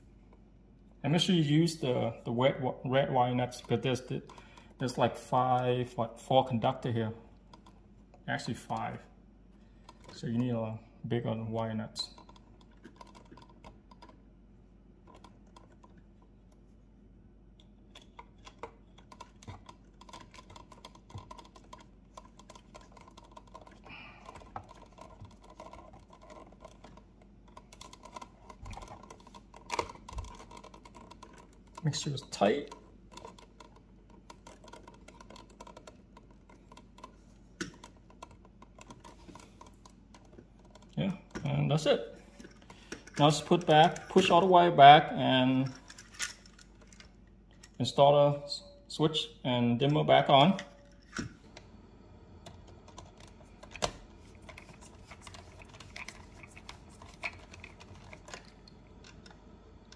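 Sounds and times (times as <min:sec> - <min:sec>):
wire nut clicking and scratching: 0:07.4 - 0:09.0, 0:11.5 - 0:14.3, 0:15.0 - 0:16.7, 0:17.5 - 0:44.5, 0:45.5 - 0:47.8, 0:52.5 - 0:59.4.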